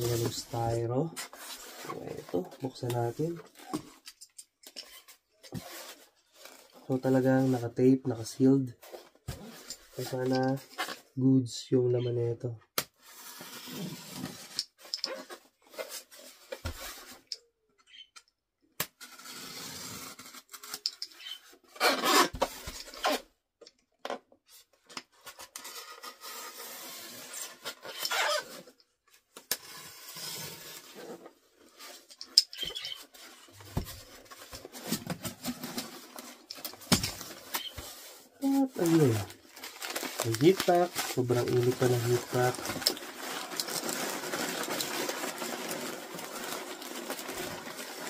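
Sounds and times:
knife scraping foam and tape: 19.0s - 23.2s, 25.6s - 28.6s
newspaper rustling: 32.8s - 48.0s.

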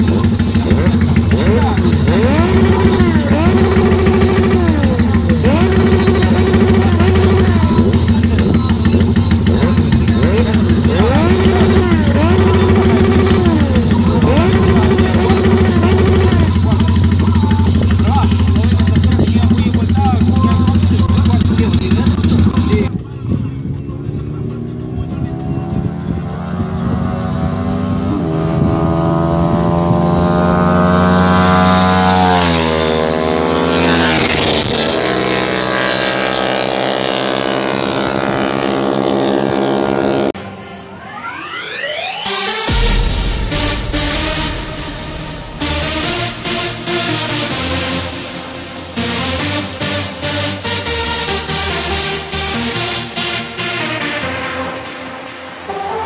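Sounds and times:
motorcycle engine idling: 0.0s - 25.4s.

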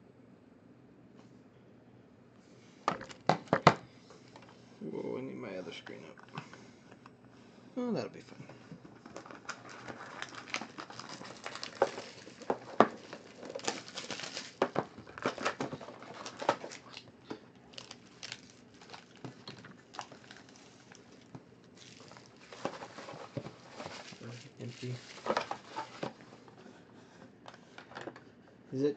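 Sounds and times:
foil packs crinkling: 9.0s - 26.5s.

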